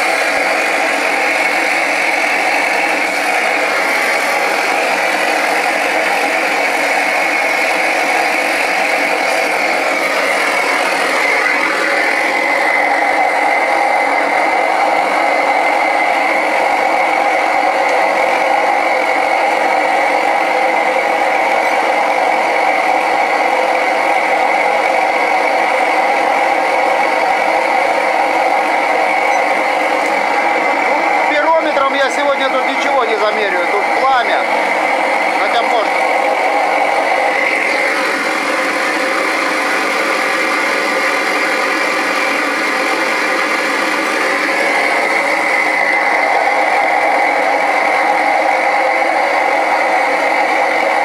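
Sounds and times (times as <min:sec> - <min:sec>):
gas burner flame roaring: 0:00.0 - 0:51.0.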